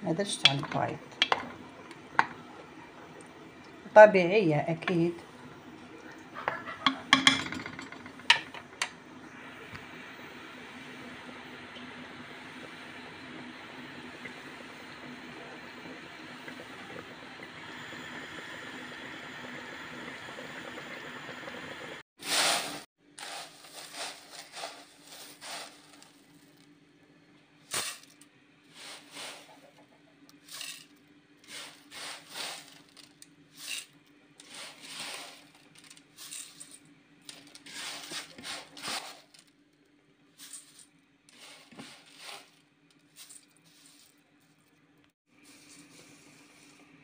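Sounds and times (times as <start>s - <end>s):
pot of sauce hissing: 9.1s - 26.1s, 28.7s - 29.7s, 31.4s - 32.8s, 34.4s - 35.5s, 41.3s - 42.5s
pasta rustling in metal bowl: 22.2s - 26.6s, 30.4s - 39.5s, 40.4s - 46.9s.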